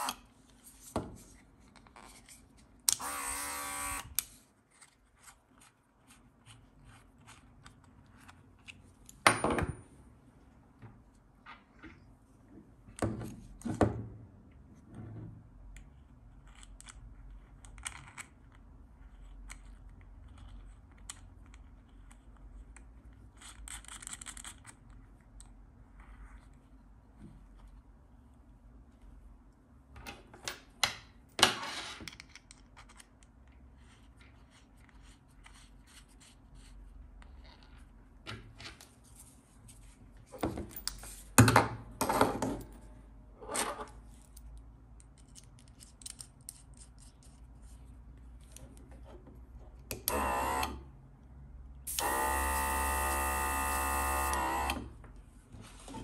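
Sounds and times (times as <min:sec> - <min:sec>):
small compressor motor buzzing: 0:03.0 - 0:04.1, 0:50.1 - 0:50.8, 0:51.9 - 0:54.8.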